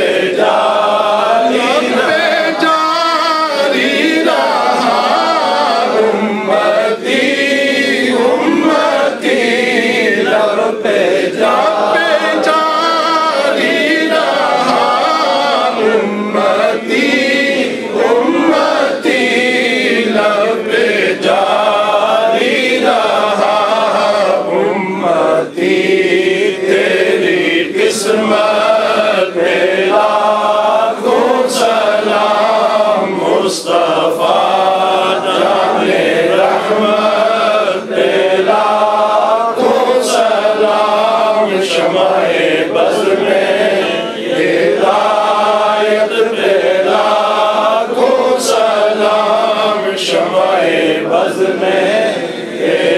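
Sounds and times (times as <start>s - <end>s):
men chanting a hymn: 0.0s - 52.9s.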